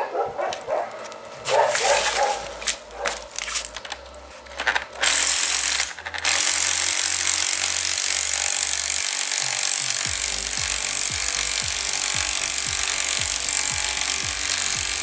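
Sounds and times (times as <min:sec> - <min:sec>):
impact wrench hammering: 0:04.6 - 0:15.0.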